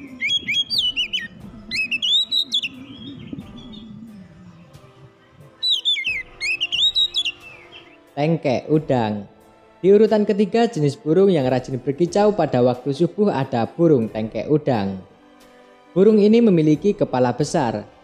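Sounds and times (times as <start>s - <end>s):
bird singing whistled phrases: 0.0s - 4.8s, 5.6s - 8.0s
soft background music: 0.0s - 18.0s.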